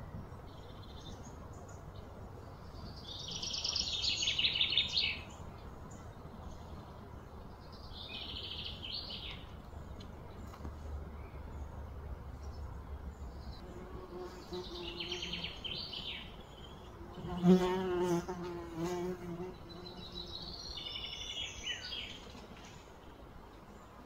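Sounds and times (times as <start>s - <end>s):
bird chirps and trills: 12.4s - 23.2s
insect buzzing: 17.0s - 20.5s.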